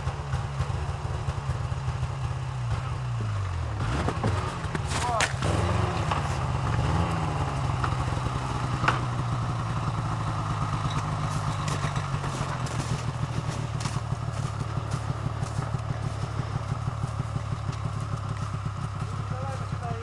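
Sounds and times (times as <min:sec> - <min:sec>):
snowmobile engine running: 0:00.0 - 0:20.0.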